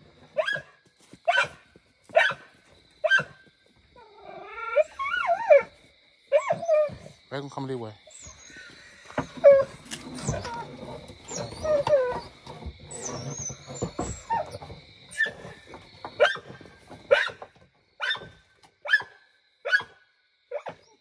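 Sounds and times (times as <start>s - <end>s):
dog yelping and whining: 0.3s - 0.7s, 3.0s - 3.4s, 4.0s - 7.2s, 8.1s - 15.6s, 16.2s - 17.4s, 20.5s - 21.0s
dog barking: 1.3s - 1.6s, 2.2s - 3.4s, 17.1s - 17.4s, 18.0s - 20.0s.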